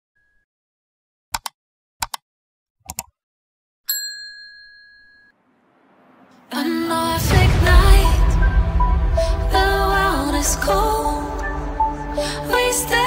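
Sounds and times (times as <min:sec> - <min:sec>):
bell-like ding: 0:03.9 - 0:05.4.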